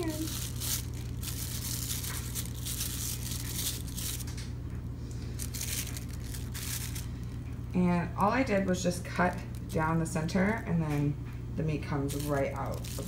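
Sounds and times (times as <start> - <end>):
plastic wrap crinkling: 0.0 - 13.0
steady low hum: 0.0 - 13.0.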